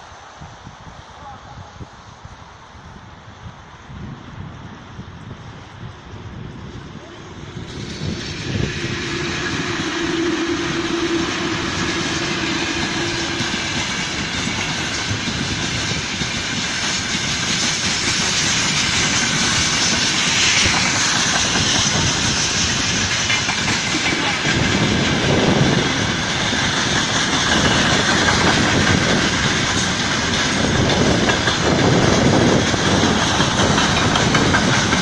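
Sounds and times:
train hiss: 0.0 - 35.0
electric locomotive hum: 1.8 - 35.0.

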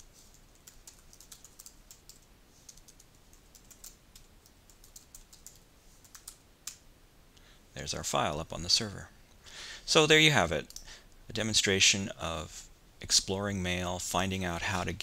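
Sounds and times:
typing on computer keyboard: 0.3 - 6.8.

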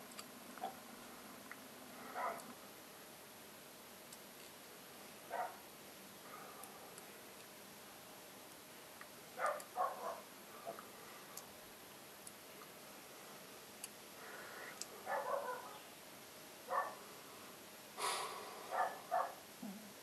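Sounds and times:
dogs barking: 2.0 - 2.5, 5.3 - 5.6, 9.4 - 10.8, 15.0 - 15.8, 16.7 - 17.1, 18.7 - 19.4.

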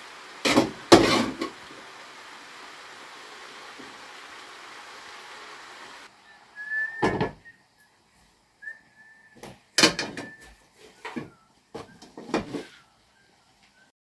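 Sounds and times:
steady hiss: 0.0 - 13.9
faint high whistling tones: 6.1 - 14.0.

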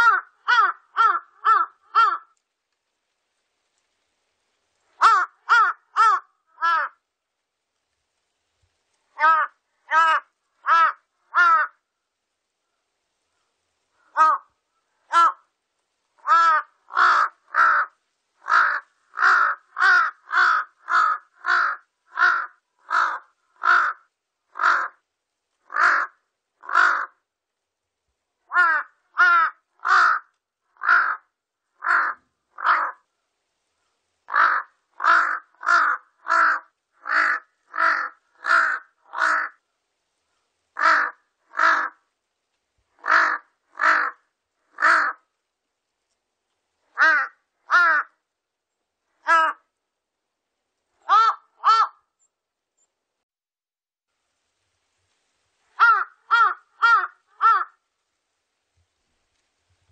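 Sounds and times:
crow cawing: 0.0 - 2.4, 5.0 - 7.0, 9.2 - 11.8, 14.0 - 15.5, 16.2 - 25.0, 25.6 - 27.2, 28.5 - 33.0, 34.3 - 39.6, 40.8 - 42.0, 43.0 - 45.3, 46.9 - 48.2, 49.2 - 49.7, 51.0 - 52.1, 55.8 - 57.8.

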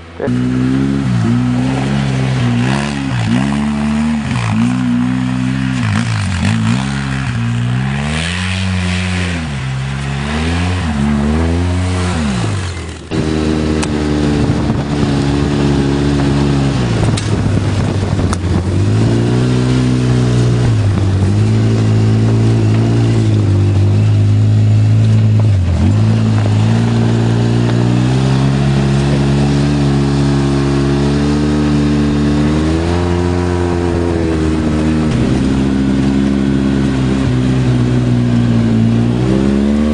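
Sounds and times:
off-road vehicle engine revving: 0.0 - 39.9.

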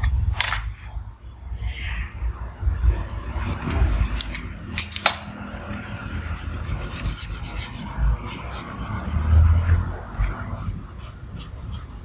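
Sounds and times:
hand rubbing on paper: 10.4 - 12.0.

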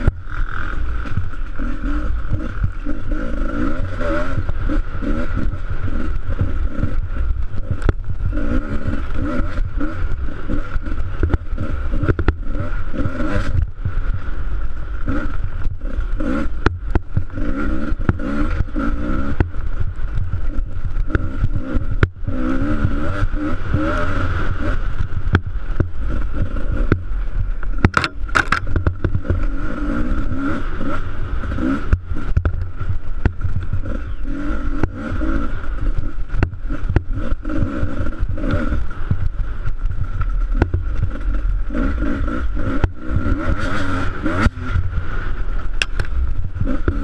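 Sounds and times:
dirt bike engine revving: 0.0 - 47.0
sharp knocks: 27.8 - 29.3.

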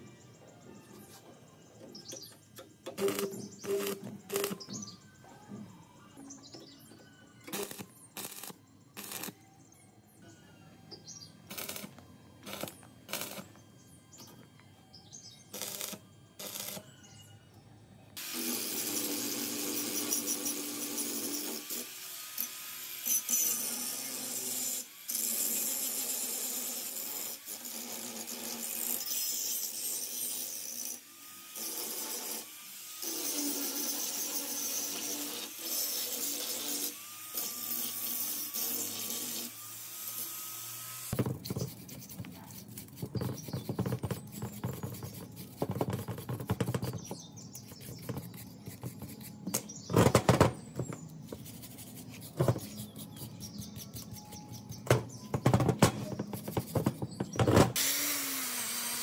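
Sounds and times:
small power tool running: 30.4 - 41.2, 57.8 - 59.0.

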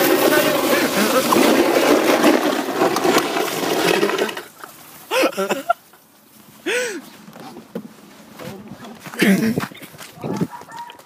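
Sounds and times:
sledge scraping over icy road: 0.0 - 5.1.

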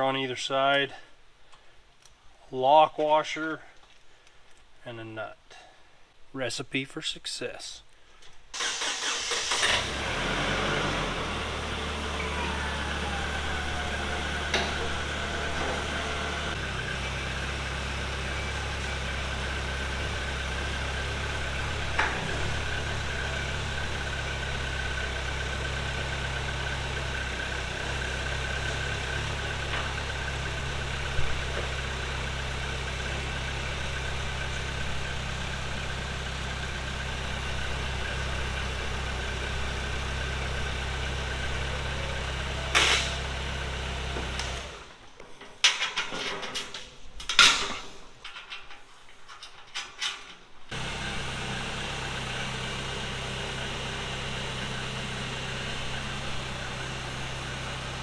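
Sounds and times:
forklift engine idling: 8.6 - 45.0, 50.7 - 58.0.

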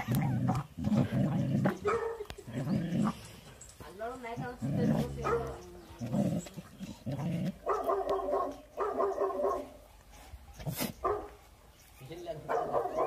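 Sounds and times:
dog growling: 0.0 - 3.6, 4.4 - 7.7.

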